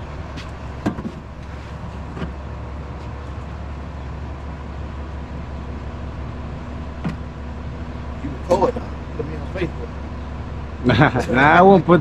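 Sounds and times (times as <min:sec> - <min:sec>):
truck engine rumbling: 0:00.0 - 0:12.0.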